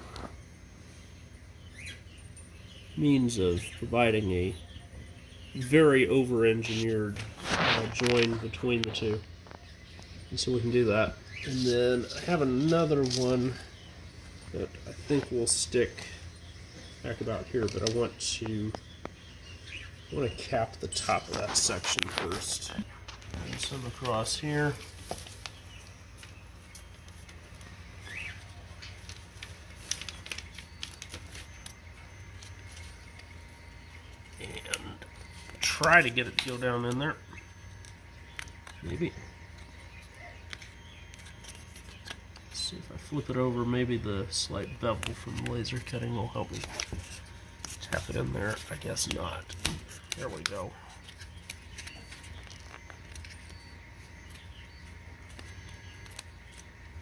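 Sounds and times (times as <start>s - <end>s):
low steady hum: 0.0s - 57.0s.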